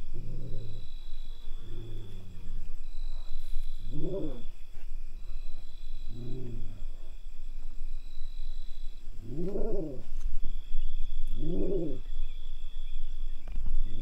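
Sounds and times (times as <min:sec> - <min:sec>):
low-pitched animal call: 0:00.0 - 0:07.2, 0:08.0 - 0:10.2, 0:11.2 - 0:12.2
crickets trilling: 0:00.0 - 0:14.0.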